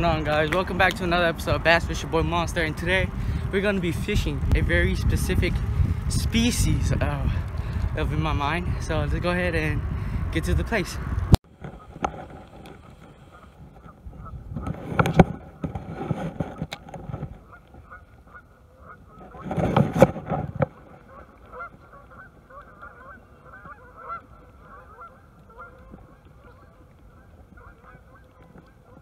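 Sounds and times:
waterfowl honking: 13.1s - 14.4s, 17.4s - 19.5s, 20.6s - 29.0s.

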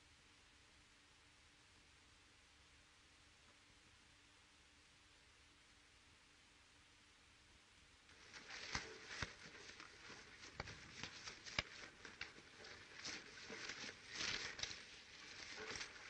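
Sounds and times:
rustling and shuffling in brush: 8.0s - 16.0s.

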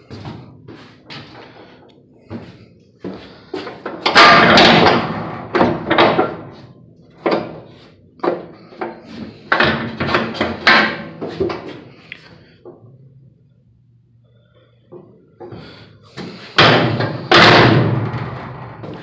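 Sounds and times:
metal trailer gates clanging: 4.0s - 6.6s, 16.6s - 19.0s.

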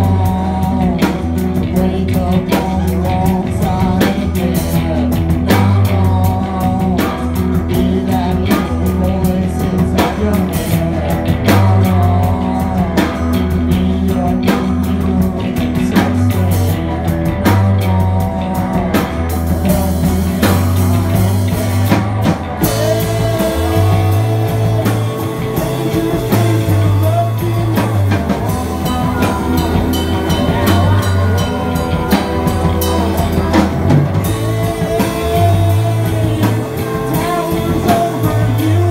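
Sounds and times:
bass line: 0.0s - 38.9s
drum kit: 0.0s - 38.9s
electric guitars: 0.0s - 38.9s.

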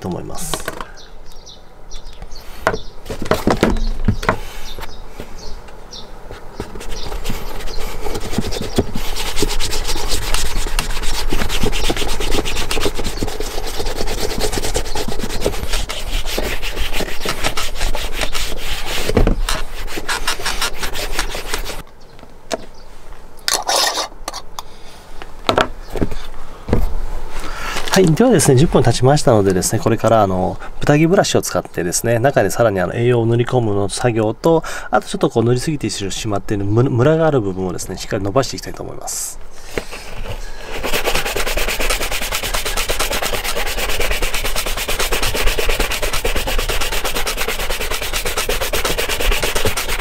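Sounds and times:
hand rubbing leather boot: 6.3s - 21.8s, 39.6s - 50.0s.

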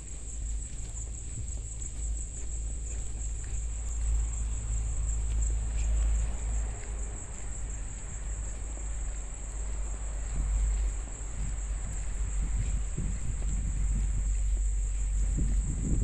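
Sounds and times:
high-pitched insect trill: 0.0s - 16.0s
low microphone rumble: 0.0s - 16.0s
soft low thumps: 7.3s - 16.0s.

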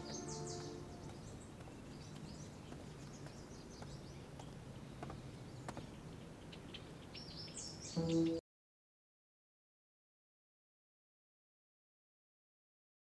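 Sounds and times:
background music: 0.0s - 1.2s, 8.0s - 8.4s
faint bird chirps: 0.0s - 8.4s.

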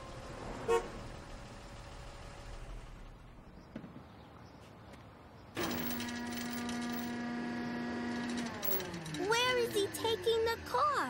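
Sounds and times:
winch mechanical whine: 5.6s - 10.8s.

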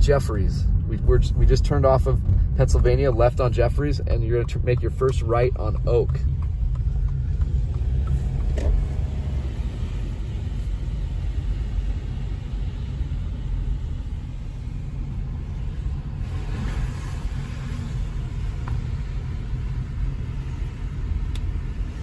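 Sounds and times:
car engine and tyres rumbling: 0.0s - 22.0s.

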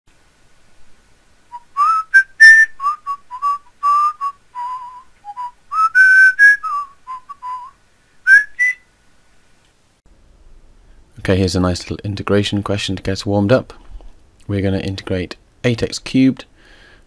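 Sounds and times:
whistled tune: 1.5s - 8.9s.

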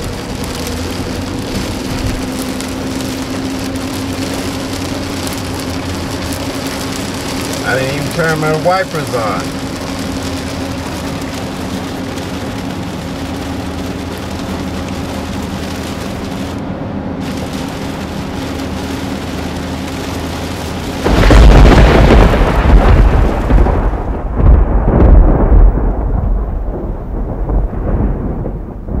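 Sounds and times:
rain noise: 0.0s - 29.0s
road and engine hum: 0.0s - 29.0s
rolling thunder: 21.0s - 29.0s.

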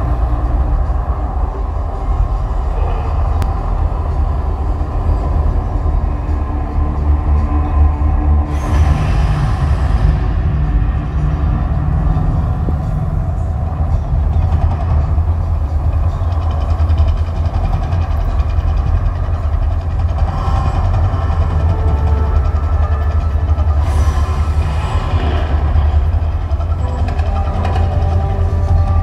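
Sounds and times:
deep steady rumble: 0.0s - 29.0s.

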